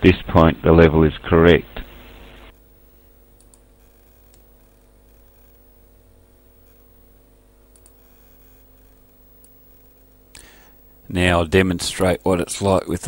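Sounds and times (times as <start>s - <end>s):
electrical hum and hiss: 0.0s - 13.0s
computer mouse clicks: 3.4s - 4.5s, 7.7s - 8.1s.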